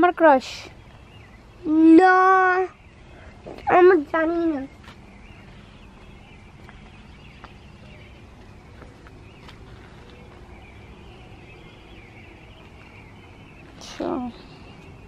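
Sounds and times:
faint bird chirping: 0:00.0 - 0:15.0.

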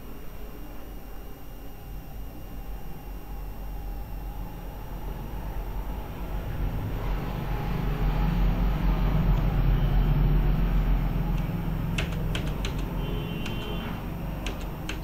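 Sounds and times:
low steady rumble: 0:03.3 - 0:15.0
keyboard key clicks: 0:11.3 - 0:13.7, 0:14.4 - 0:15.0.

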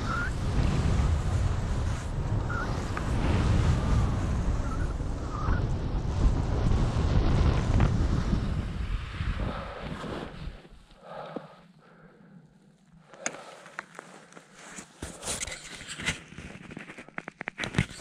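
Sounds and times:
skis on snow with wind: 0:00.0 - 0:11.3.

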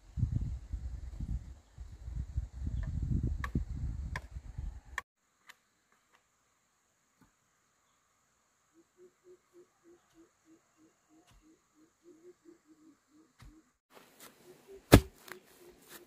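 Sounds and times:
wind buffeting microphone: 0:00.0 - 0:05.0.

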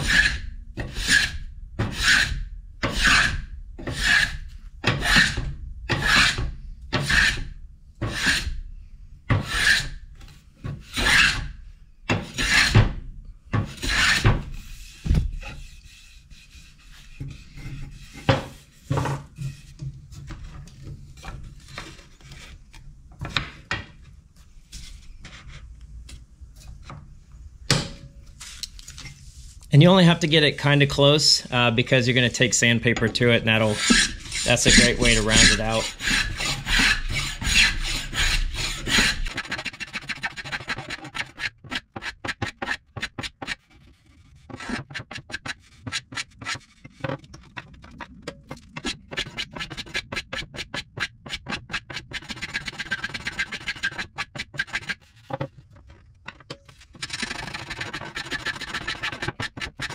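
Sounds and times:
hand plane shaving wood: 0:00.0 - 0:07.4, 0:08.0 - 0:08.5, 0:09.3 - 0:09.9, 0:10.8 - 0:11.4, 0:12.2 - 0:12.8, 0:13.6 - 0:18.8, 0:31.5 - 0:46.8, 0:48.8 - 0:55.4, 0:57.0 - 0:59.9.

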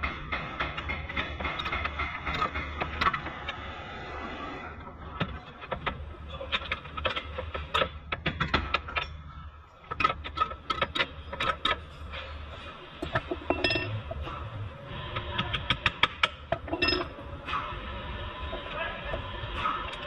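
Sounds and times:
metal part clanking and clinking: 0:13.0 - 0:14.2, 0:16.0 - 0:17.2.

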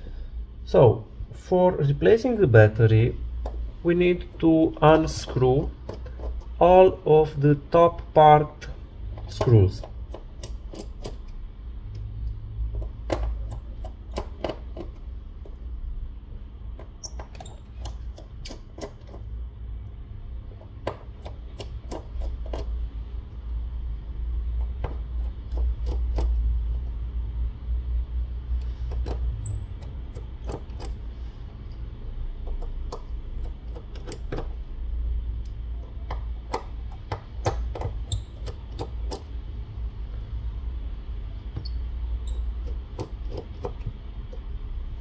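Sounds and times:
low steady hum: 0:00.0 - 0:45.0
screwdriver clicks and taps: 0:09.2 - 0:11.3, 0:12.8 - 0:15.6, 0:24.5 - 0:26.4, 0:35.4 - 0:39.3.

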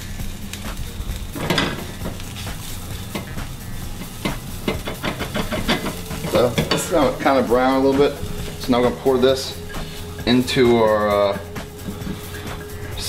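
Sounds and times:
roux sizzling: 0:00.0 - 0:13.0
utensil scraping pan: 0:01.3 - 0:10.6, 0:11.2 - 0:12.8
utensil clicking on pan: 0:01.4 - 0:09.6.

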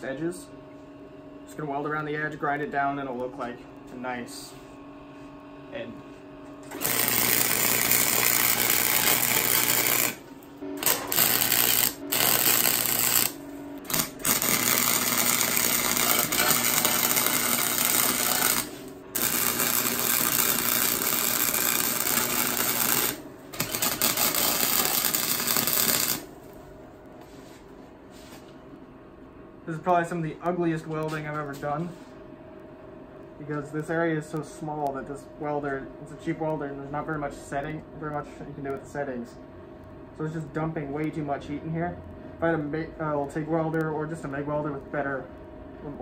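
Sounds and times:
welder arc crackling: 0:06.6 - 0:26.6.

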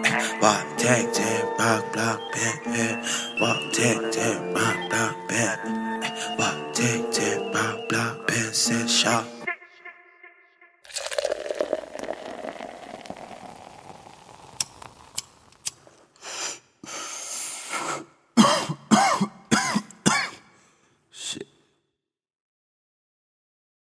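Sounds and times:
person coughing: 0:18.4 - 0:20.6.

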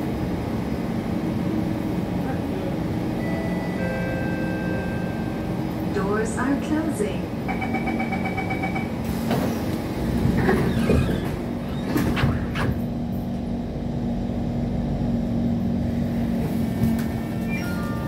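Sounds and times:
train doors closing: 0:02.2 - 0:13.5, 0:16.0 - 0:18.0.

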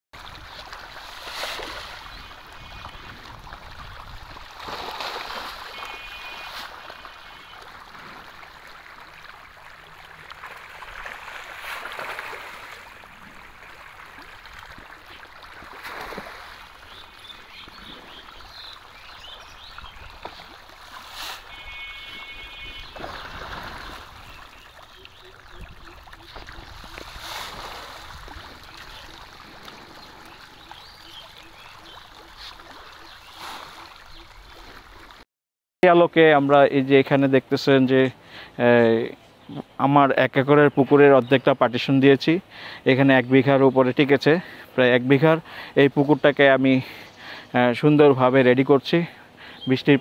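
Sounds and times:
fish splashing in water: 0:00.2 - 0:35.2.

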